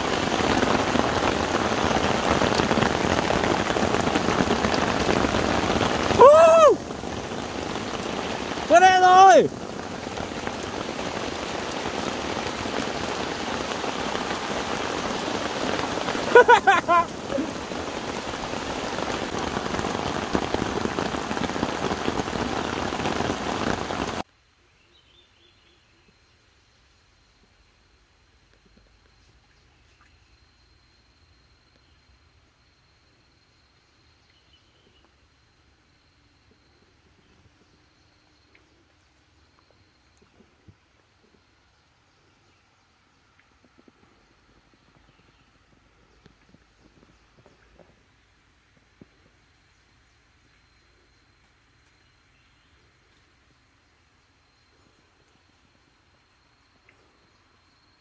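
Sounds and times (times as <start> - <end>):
heavy rain on umbrella: 0.0 - 24.3, 43.5 - 50.4
rain on lake surface: 0.0 - 24.6, 26.4 - 58.0.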